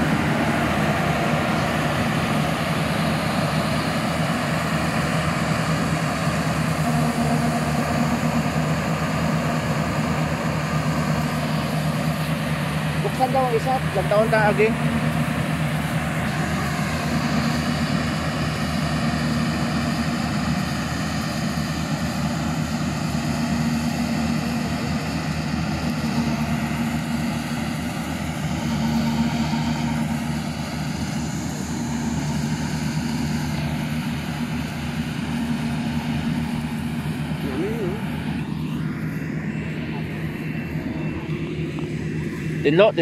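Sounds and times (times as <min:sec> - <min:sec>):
combine harvester engine drone: 0:00.0 - 0:43.0.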